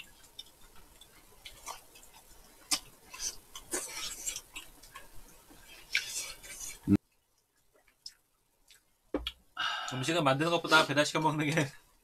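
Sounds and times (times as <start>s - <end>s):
chewing with crackly bites: 0.0s - 9.4s.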